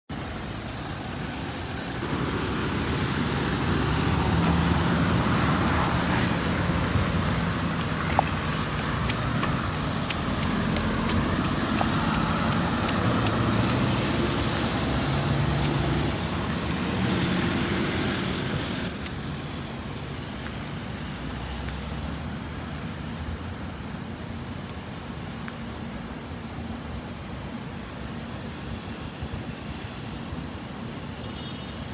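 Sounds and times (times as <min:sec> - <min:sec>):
rain: 0:00.1 - 0:31.9
tyre hiss on wet road: 0:00.1 - 0:31.9
diesel truck engine running: 0:02.0 - 0:18.9.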